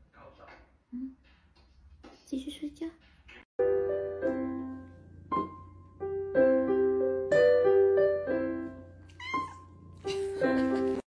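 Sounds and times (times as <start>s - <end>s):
electronic keyboard piano notes: 3.6s - 11.0s.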